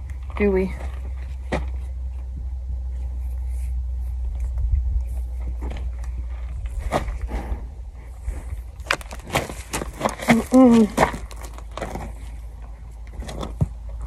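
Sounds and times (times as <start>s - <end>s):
wind rumble on microphone: 4.1s - 9.6s
rope and reins clicking and rustling: 8.3s - 14.0s.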